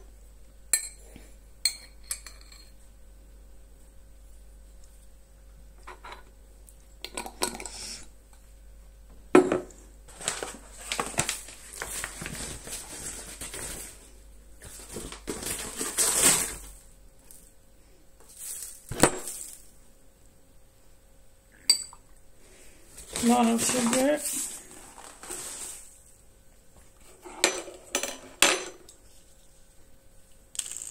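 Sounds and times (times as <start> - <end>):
spoon clinking against glass: 21.7 - 22.0.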